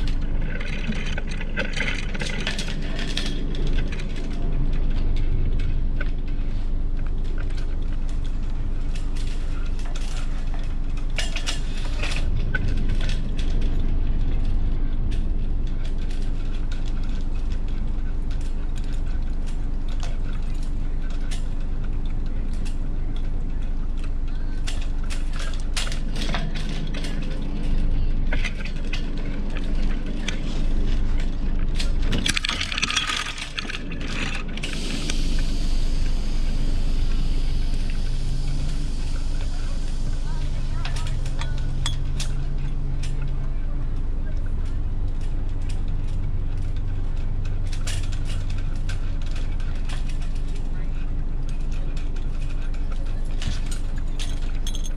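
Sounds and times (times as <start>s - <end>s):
rigging hardware clicking and clinking: 0.0s - 35.2s, 40.7s - 54.9s
steady low rumble: 0.0s - 54.9s.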